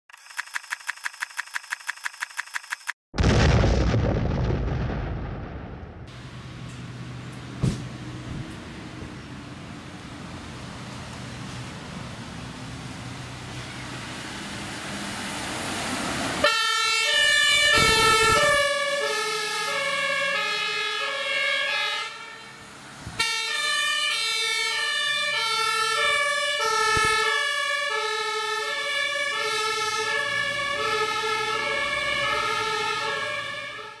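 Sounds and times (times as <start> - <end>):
vehicle engine: 6.0 - 21.3, 22.1 - 33.8
road noise: 6.1 - 34.0
two-tone ambulance siren: 16.3 - 34.0.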